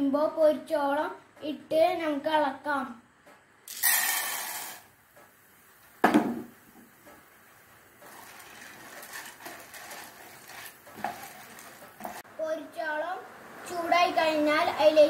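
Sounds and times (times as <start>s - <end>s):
kernels sizzling in hot oil: 3.7s - 4.9s, 7.9s - 12.3s
sharp knock: 6.0s - 6.5s
wooden spatula scraping pan: 8.0s - 12.3s.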